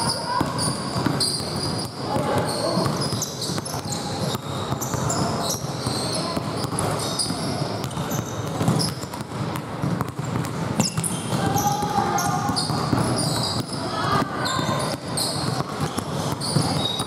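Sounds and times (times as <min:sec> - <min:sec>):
sneakers squeaking: 0:00.0 - 0:17.0
basketball dribbling on hardwood: 0:00.4 - 0:11.4.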